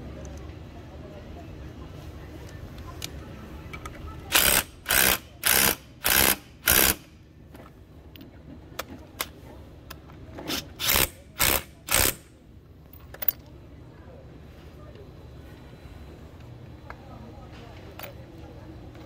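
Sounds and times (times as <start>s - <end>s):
impact wrench hammering: 4.3s - 7.1s, 10.5s - 12.2s.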